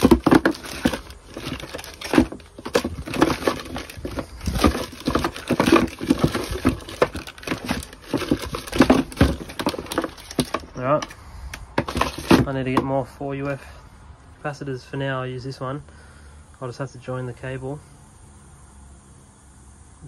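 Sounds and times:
packaging rustling: 0.0 - 12.8
parts clattering in plastic box: 0.0 - 13.0.

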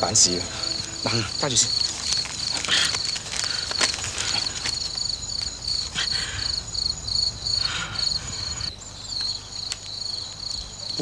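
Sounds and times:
crickets chirping: 0.0 - 11.0.

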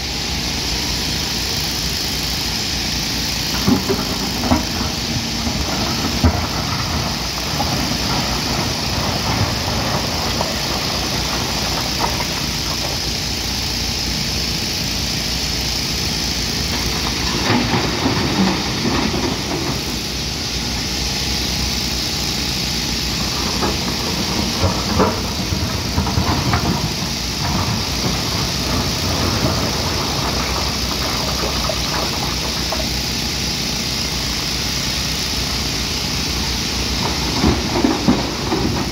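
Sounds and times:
excavator diesel engine running: 0.0 - 38.9
knocks and clanks of machine: 3.4 - 13.6, 16.6 - 20.2, 23.1 - 33.6, 36.8 - 38.9.

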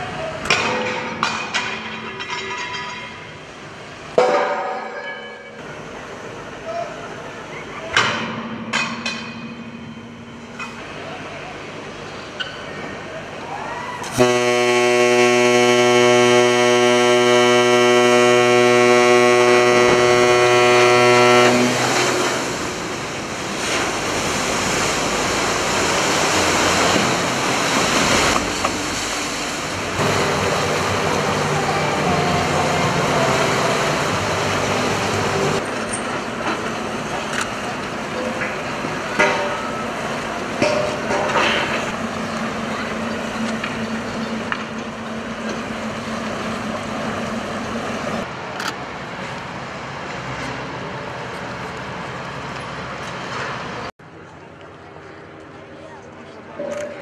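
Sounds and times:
ship's horn blast: 14.0 - 23.0, 29.7 - 35.6.

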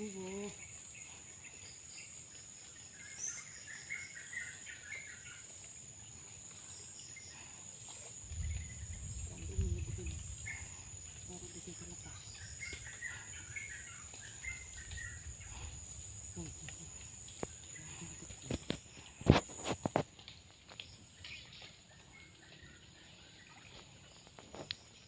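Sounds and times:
insect chorus shrilling: 0.0 - 20.0
short insect chirps: 12.0 - 20.1.

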